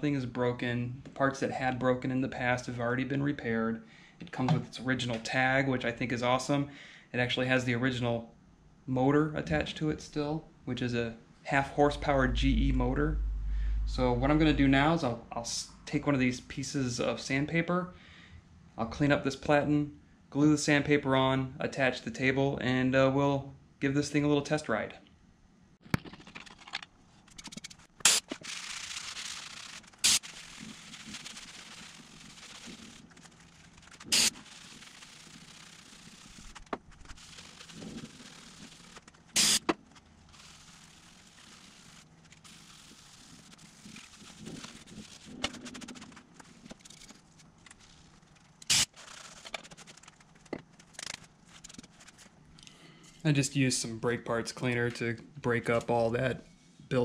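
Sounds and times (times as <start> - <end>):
aerosol can spraying: 28.1 - 32.9, 39.4 - 39.6.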